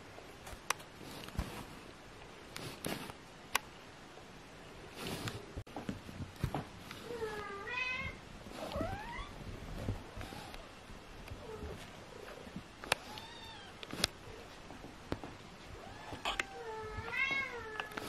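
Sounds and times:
kittens meowing: 15.8s - 18.0s.

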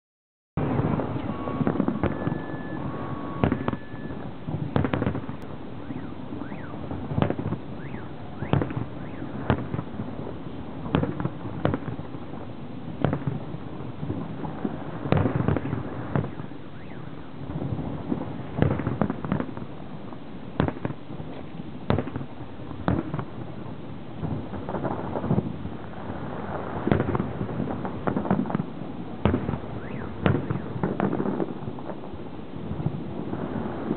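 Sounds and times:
firework shells bursting: 0.7s - 5.5s, 26.2s - 32.1s.

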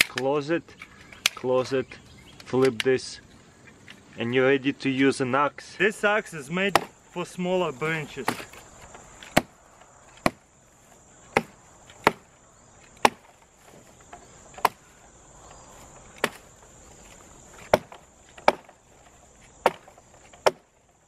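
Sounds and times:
crickets trilling: 0.0s - 21.0s
axe strikes into wood: 6.7s - 7.0s, 8.2s - 8.6s, 9.3s - 9.6s, 10.2s - 10.5s, 11.3s - 12.3s, 13.0s - 13.4s, 14.6s - 14.8s, 16.2s - 16.4s, 17.6s - 18.8s, 19.6s - 20.7s.

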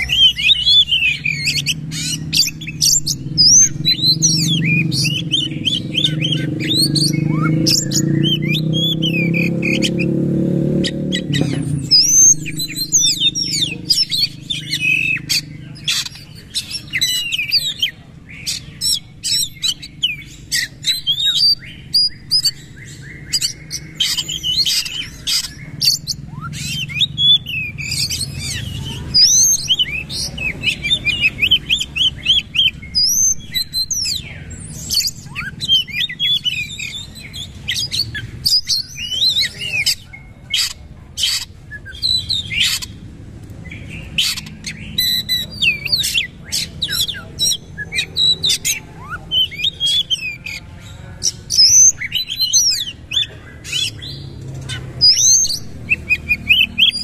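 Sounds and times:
bird singing whistles and clicks: 0.0s - 10.2s, 10.8s - 34.2s.

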